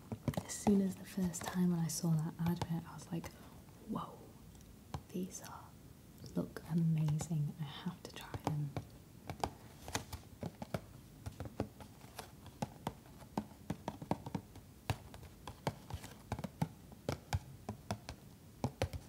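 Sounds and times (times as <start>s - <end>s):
fingernails tapping on cardboard: 8.2s - 19.0s.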